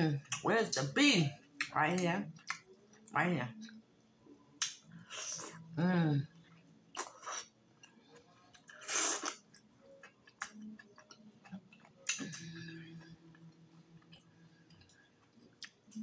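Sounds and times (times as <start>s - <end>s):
wet chewing and mouth smacks: 2.4s - 3.8s, 6.9s - 12.4s.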